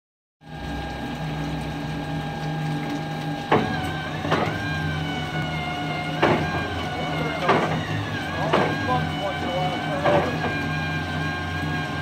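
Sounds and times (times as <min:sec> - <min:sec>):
mechanical whirring with hum: 0:00.4 - 0:12.0
engine sharp pops: 0:06.2 - 0:06.6.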